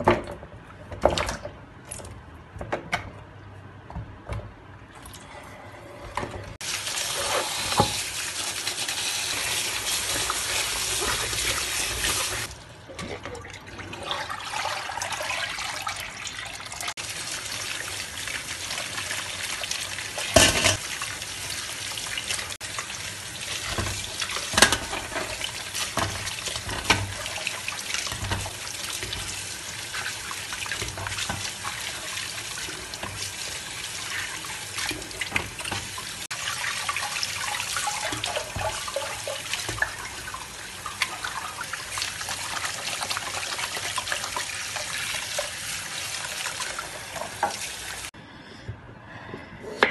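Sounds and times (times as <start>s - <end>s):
vegetables rinsed in water: 6.5s - 48.2s
tap water splashing into sink: 7.3s - 8.2s, 23.5s - 32.3s, 34.1s - 45.6s, 46.3s - 48.0s.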